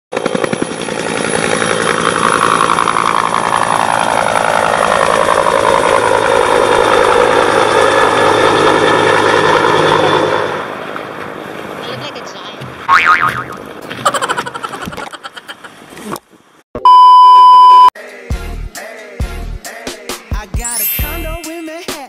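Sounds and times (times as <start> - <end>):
helicopter rotor blades beating: 0.1 - 12.2
helicopter turbine whine: 0.1 - 12.4.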